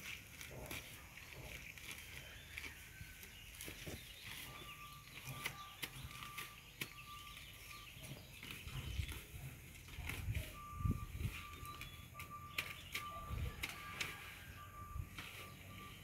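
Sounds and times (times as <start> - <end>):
grass being pulled by hand: 0.0 - 16.0
high beep: 10.4 - 16.0.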